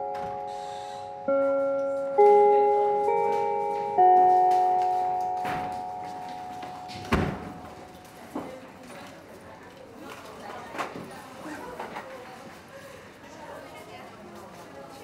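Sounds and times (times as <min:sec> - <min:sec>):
school bell chime: 0:00.0 - 0:08.2.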